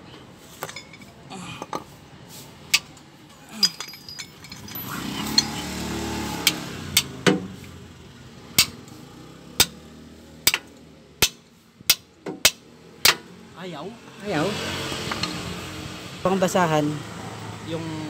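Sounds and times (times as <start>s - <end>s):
hammer striking metal wrench: 3.6s - 5.6s, 8.6s - 8.8s, 9.6s - 9.8s, 10.4s - 13.2s.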